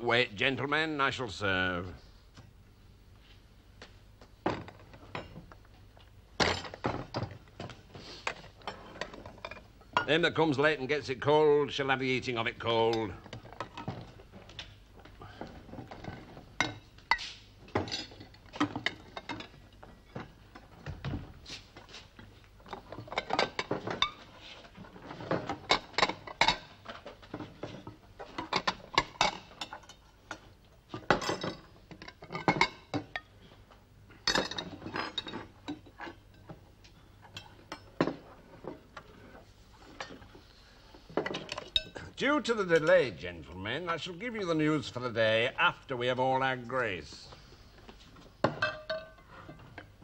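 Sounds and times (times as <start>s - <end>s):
mugs set down: 47.8s - 49.9s.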